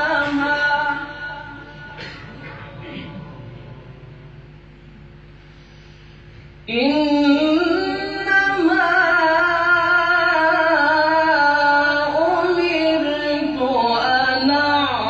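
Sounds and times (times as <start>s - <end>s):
man reciting melodically: 6.7s - 15.0s.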